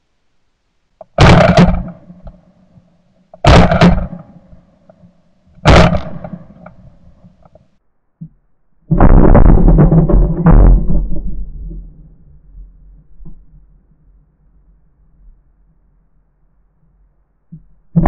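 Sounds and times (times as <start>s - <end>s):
shotgun shots: 1.1s - 2.4s, 3.4s - 4.6s, 5.6s - 6.9s.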